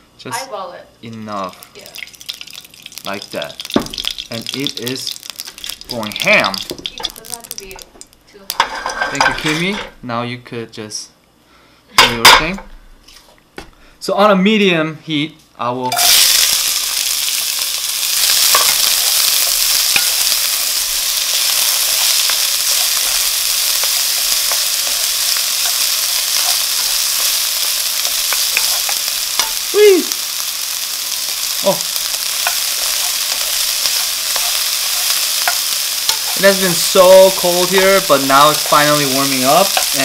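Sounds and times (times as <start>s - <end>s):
vegetables sizzling in oil: 0.3s - 9.6s, 15.9s - 40.0s
spatula scraping a pan: 8.6s - 9.6s.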